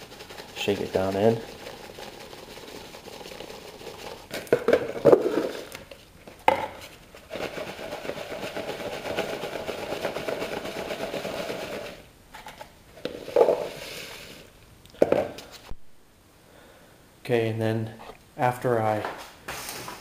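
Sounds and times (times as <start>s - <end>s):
pellets rattling in plastic tub: 0.0s - 5.8s, 7.2s - 12.0s.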